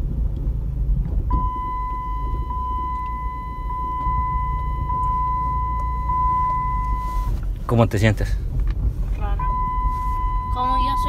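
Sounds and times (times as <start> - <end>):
minivan driving rumble: 0.0 - 11.0
high-pitched electronic beep: 1.3 - 7.3, 9.4 - 11.0.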